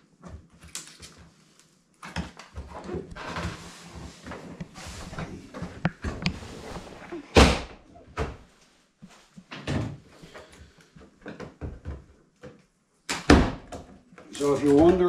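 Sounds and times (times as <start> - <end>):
plastic scraping: 2.8 - 7.3.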